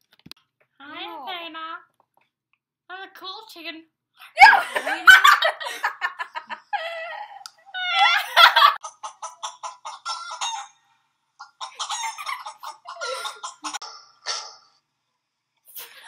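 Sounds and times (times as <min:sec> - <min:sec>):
chicken clucking: 0:08.4 - 0:14.0
chicken crowing call: 0:09.9 - 0:10.8.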